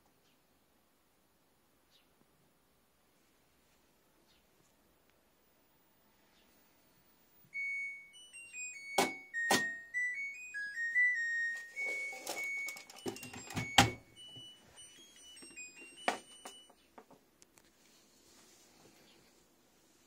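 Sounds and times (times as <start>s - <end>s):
washing machine beeping melody: 7.5s - 16.8s.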